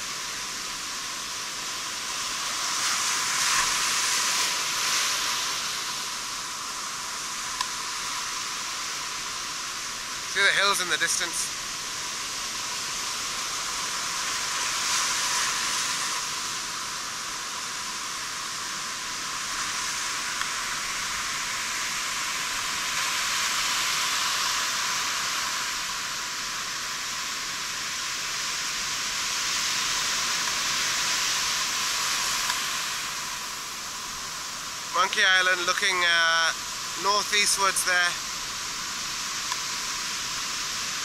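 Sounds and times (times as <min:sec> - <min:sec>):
surf washing onto beach: 0:00.0 - 0:41.0.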